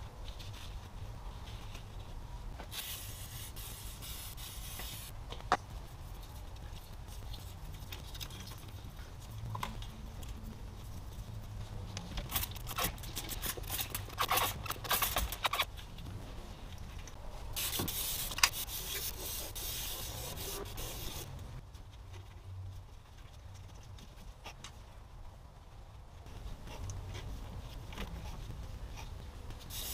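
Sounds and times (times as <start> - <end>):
spray bottle hissing: 2.7 - 5.1, 17.6 - 21.2, 29.7 - 29.9
gloves and rags rubbing: 17.6 - 21.4.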